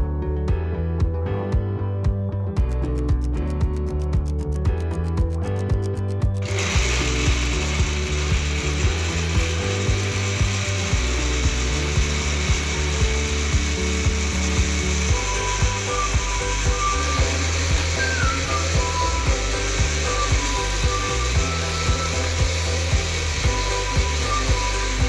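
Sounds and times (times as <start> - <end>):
background music with steady beat: 0.0 - 25.0
blender motor running: 6.4 - 25.0.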